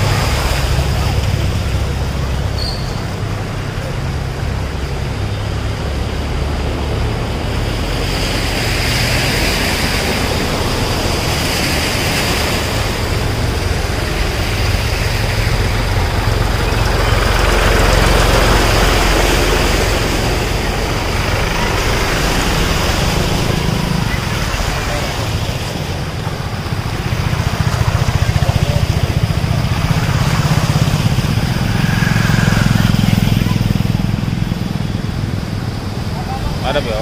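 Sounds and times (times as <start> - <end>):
tractor diesel engine: 0.0 - 37.0
tyres splashing through water: 0.0 - 37.0
thin high whine: 29.6 - 34.9.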